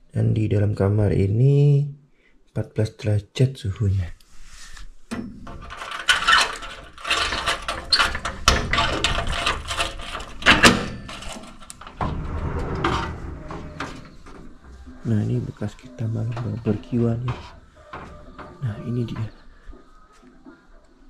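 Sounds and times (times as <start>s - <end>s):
rustling and fumbling: 4.2s - 20.8s
door opening: 5.2s - 19.5s.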